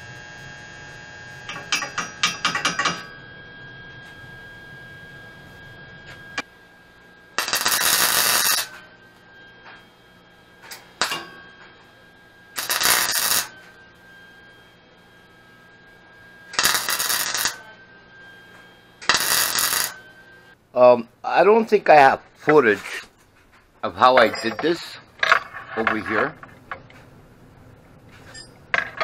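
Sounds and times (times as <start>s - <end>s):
welder crackling and sizzling: 0.0s - 2.9s, 5.4s - 20.6s.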